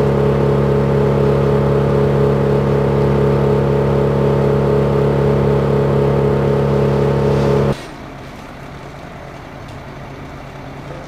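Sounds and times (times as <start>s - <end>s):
machine engine running loud: 0.0s - 7.8s
faint engine hum: 0.0s - 11.0s.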